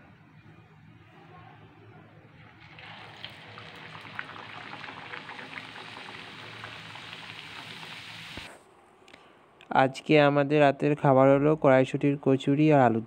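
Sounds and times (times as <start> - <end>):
dough sizzling in hot oil: 2.6 - 8.6.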